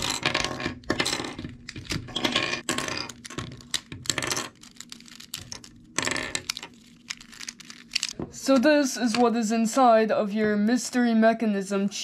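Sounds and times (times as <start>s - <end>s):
plastic puzzle cube pieces clicking: 3.0s - 8.2s.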